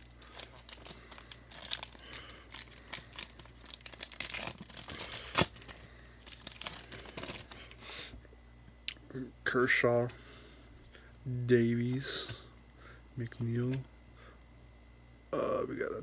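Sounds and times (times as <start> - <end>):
card pack wrapper crinkling: 0.0 - 7.8.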